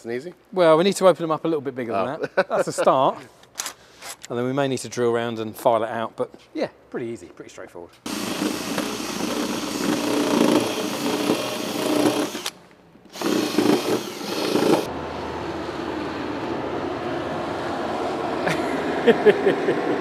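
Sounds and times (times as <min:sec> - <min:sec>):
drill boring through plastic: 0:08.1 - 0:14.9.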